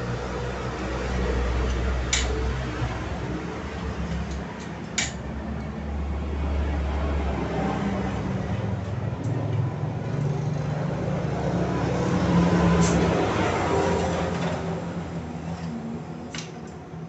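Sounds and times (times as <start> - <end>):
low mechanical rumble: 0.0 - 17.0
sharp metal click: 1.7 - 2.4, 4.6 - 5.2.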